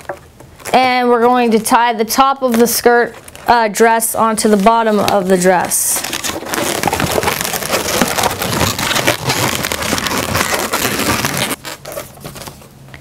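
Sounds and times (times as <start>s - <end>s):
balloons rubbing and squeaking: 2.8s - 12.6s.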